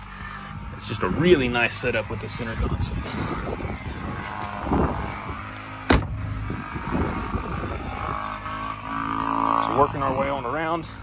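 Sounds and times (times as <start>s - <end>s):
low steady rumble: 0.0s - 11.0s
boat seat shutting knock: 5.9s - 6.1s.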